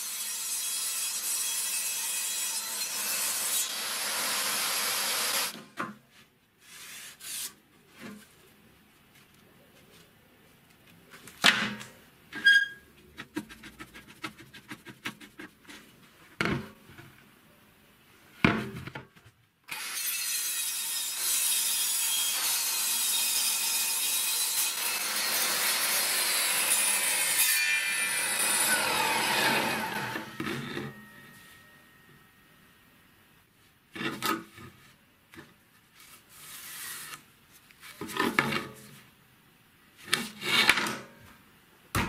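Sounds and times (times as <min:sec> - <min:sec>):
table saw cutting board: 0:00.0 - 0:05.6, 0:19.7 - 0:31.4.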